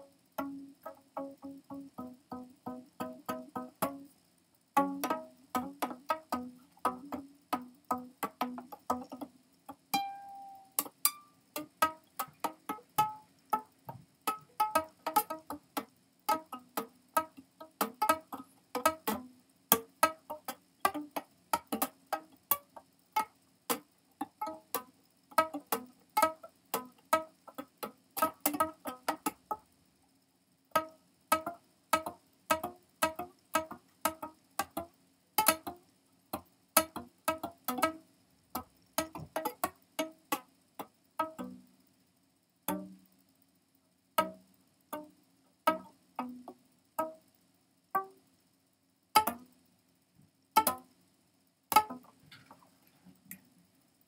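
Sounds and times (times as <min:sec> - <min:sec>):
plucked guitar notes: 0:00.0 - 0:04.1, 0:04.8 - 0:13.7, 0:14.3 - 0:22.6, 0:23.2 - 0:29.4, 0:30.8 - 0:35.8, 0:36.8 - 0:38.0, 0:39.0 - 0:40.4, 0:41.2 - 0:41.6, 0:42.7 - 0:43.0, 0:44.2 - 0:45.1, 0:45.7 - 0:47.2, 0:48.0 - 0:48.2, 0:49.2 - 0:49.5, 0:50.6 - 0:50.9, 0:51.7 - 0:52.1.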